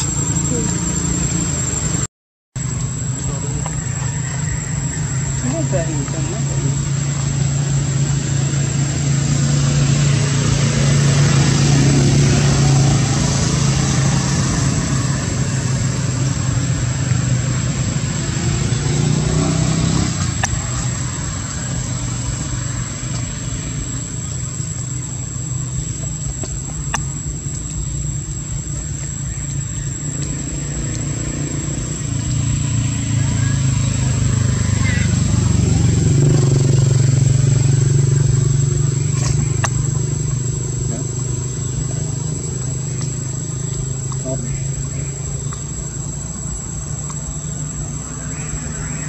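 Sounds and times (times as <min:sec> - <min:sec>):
vehicle engine running: 0:00.0 - 0:49.0.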